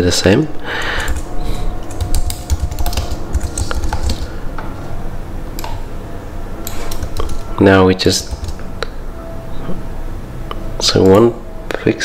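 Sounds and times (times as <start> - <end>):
computer keyboard typing: 0.8 - 4.4, 5.6 - 5.8, 6.6 - 8.7.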